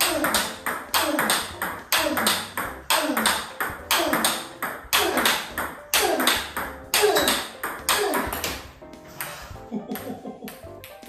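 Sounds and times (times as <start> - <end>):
table tennis ball cracking off bat: 0.0 - 8.7
ball bouncing on table: 0.0 - 9.3.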